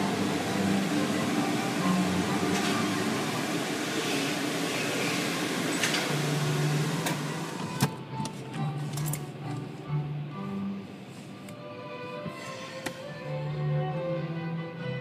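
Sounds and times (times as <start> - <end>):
car wash equipment rushing: 0.0 - 8.0.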